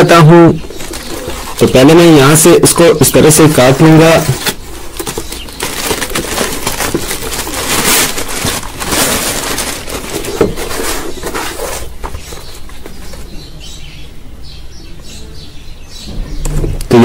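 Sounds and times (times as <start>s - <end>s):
plastic mailer bag crinkling and tearing: 3.2s - 12.5s
cardboard box handling: 3.4s - 13.3s.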